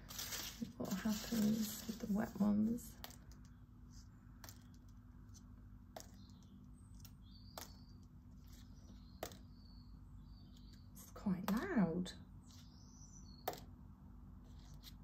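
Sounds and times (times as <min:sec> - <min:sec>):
leaf ticking on paper: 0:00.0 - 0:03.5.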